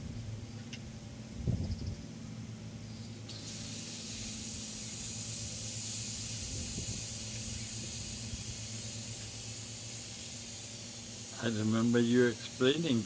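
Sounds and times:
high-pitched gas hiss: 2.8 - 13.0.

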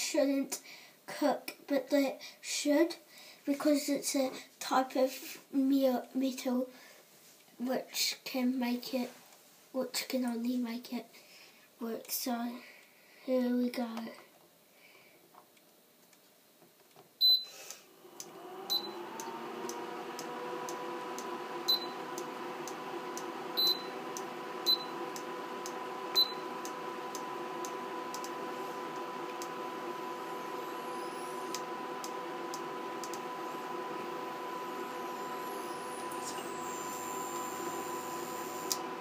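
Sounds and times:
cooling fan noise: 17.9 - 39.0.

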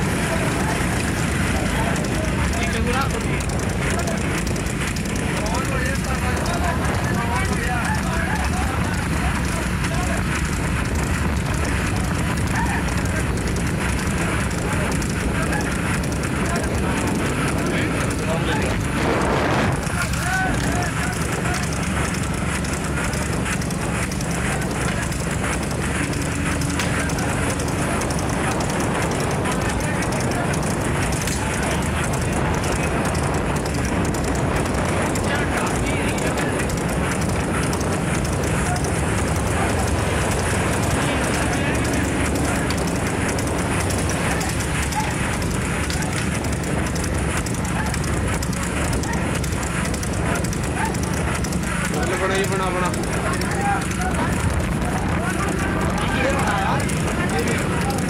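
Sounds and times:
fast irregular crackle: 0.0 - 58.0
low rumble: 0.0 - 58.0
vehicle road noise: 0.0 - 58.0
wind on microphone: 8.3 - 52.2.

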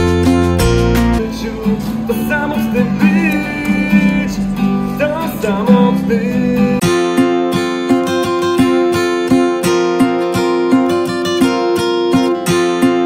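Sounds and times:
person singing: 0.0 - 8.0
acoustic guitar strumming: 0.0 - 13.0
strummed guitar music track: 0.0 - 13.0.

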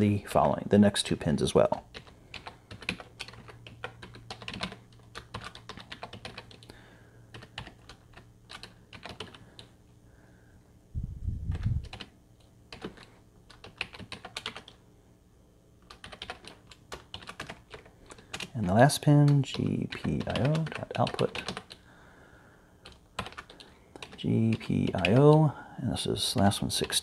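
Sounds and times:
keyboard typing: 1.8 - 6.7, 7.3 - 9.7, 11.5 - 12.1, 12.7 - 14.8, 15.8 - 21.8, 22.8 - 25.5.

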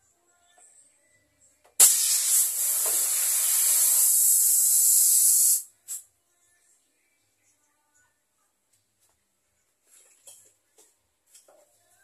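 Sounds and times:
spray gun hissing: 1.8 - 5.6.

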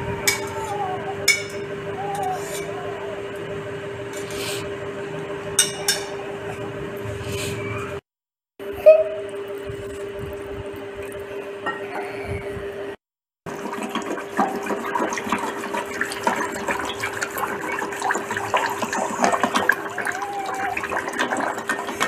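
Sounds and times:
water pouring into bowl: 13.5 - 22.0.

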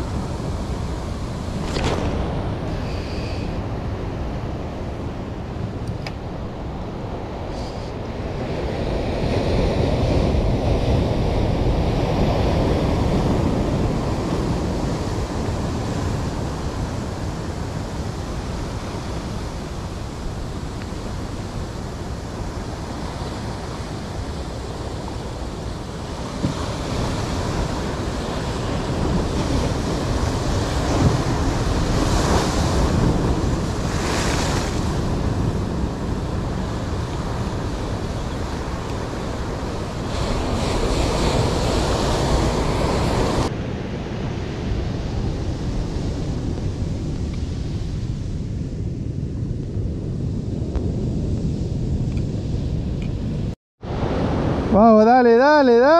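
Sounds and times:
surf breaking over rocks: 0.0 - 4.6, 9.3 - 43.5
wind buffeting microphone: 0.0 - 54.8.

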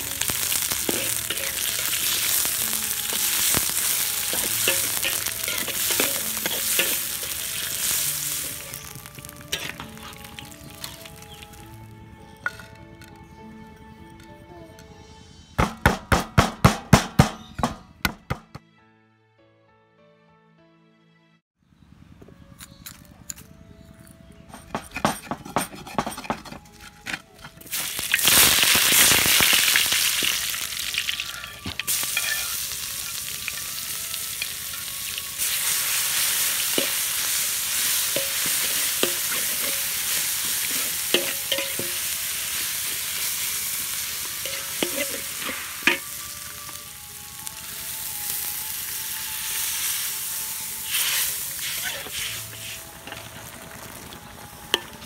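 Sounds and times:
paste sizzling in hot oil: 0.0 - 11.8, 27.7 - 55.0
metal spatula clinking and scraping: 0.2 - 11.5, 24.4 - 46.2
stone pestle knocking mortar: 15.6 - 18.6.

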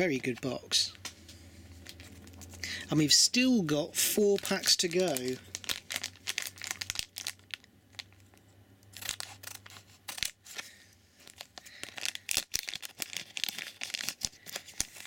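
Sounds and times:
foil pack crinkling: 1.8 - 15.0
scissors cutting foil: 8.9 - 10.6.

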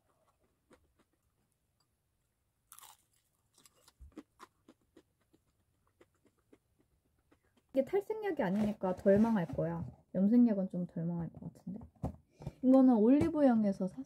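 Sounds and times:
crunching fried chicken: 2.7 - 7.7.

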